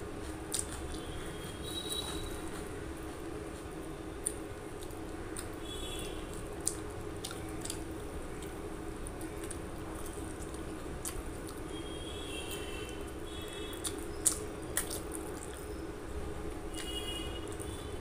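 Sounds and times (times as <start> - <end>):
steady low hum: 0.0 - 18.0
wet chewing with mouth clicks: 0.2 - 1.2, 1.8 - 11.6, 13.5 - 15.8.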